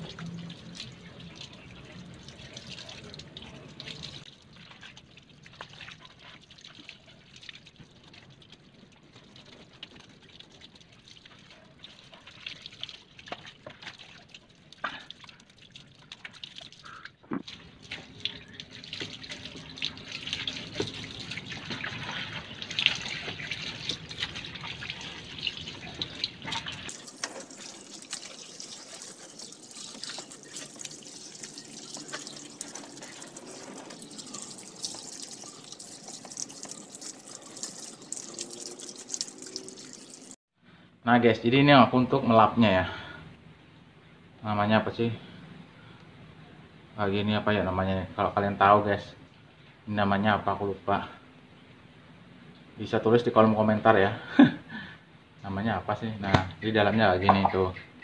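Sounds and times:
water dripping: 0.0s - 40.4s, 56.2s - 58.0s
water from hose splashing: 0.0s - 40.4s
hands rubbing wet wheel: 17.9s - 40.3s.

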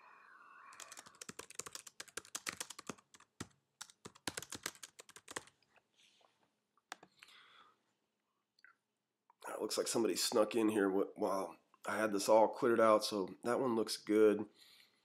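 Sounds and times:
typing on computer keyboard: 0.7s - 5.6s, 6.9s - 7.2s.

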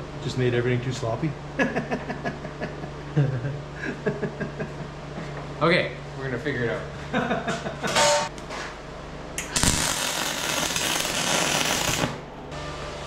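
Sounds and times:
welding arc crackling: 9.4s - 12.2s.

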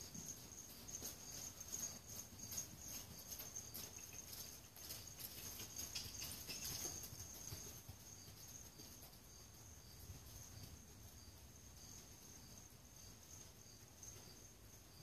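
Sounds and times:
faint high chirping: 0.0s - 10.7s
distant horse hoofbeats on sand: 0.0s - 15.0s.

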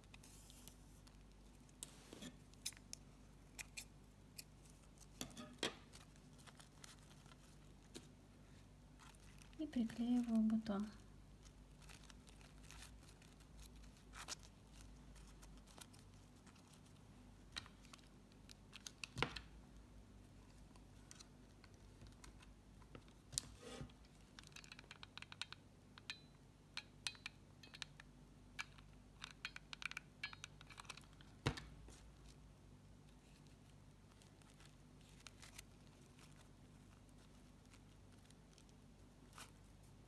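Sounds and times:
ribbon rustling and clicking: 0.0s - 19.5s, 33.0s - 40.0s.

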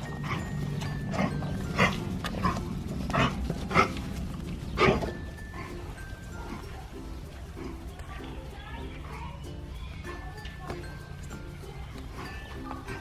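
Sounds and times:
dogs growling playfully: 0.0s - 8.0s
puppies yipping: 0.0s - 10.3s, 11.6s - 13.0s.

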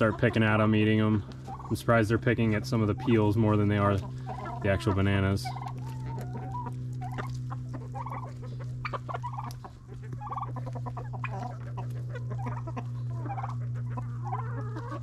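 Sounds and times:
chickens clucking: 0.0s - 15.0s
steady low hum: 0.0s - 15.0s.

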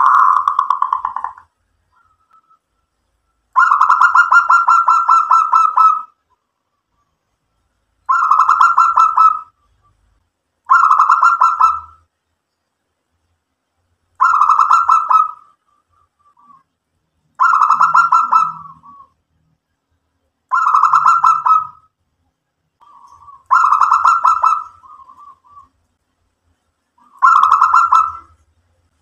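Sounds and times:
dove cooing: 0.0s - 2.2s, 3.6s - 6.2s, 8.1s - 9.6s, 10.7s - 12.0s, 14.2s - 15.7s, 17.4s - 19.2s, 20.5s - 21.8s, 22.8s - 25.8s, 27.0s - 28.4s.

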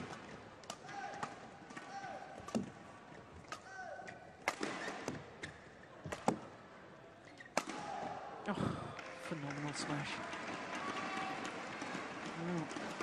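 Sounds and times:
shoes squeaking on court floor: 7.2s - 7.6s.

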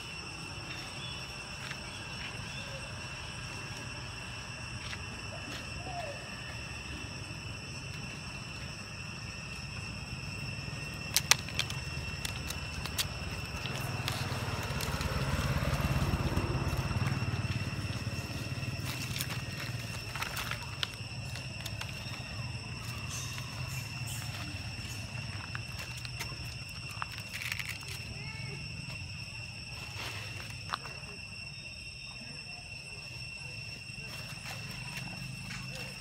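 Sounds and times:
insect drone: 0.0s - 36.0s
vehicle passing by: 13.7s - 19.8s.

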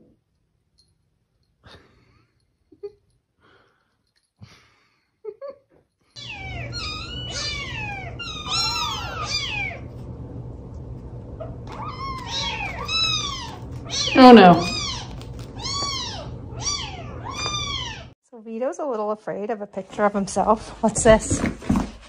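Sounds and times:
kittens mewing: 6.2s - 9.9s, 11.4s - 18.1s.

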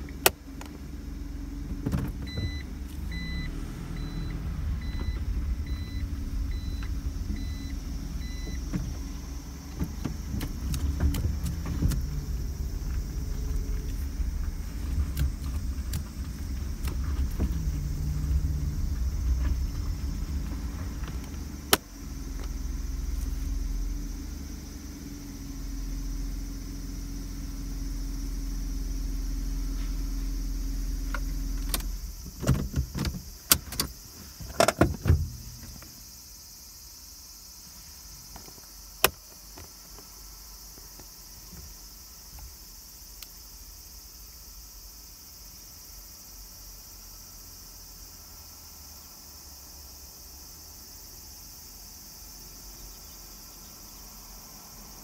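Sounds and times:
car engine and road rumble: 0.0s - 55.0s
insects chirring: 0.0s - 55.0s
sharp clicks and knocks: 9.7s - 13.1s.

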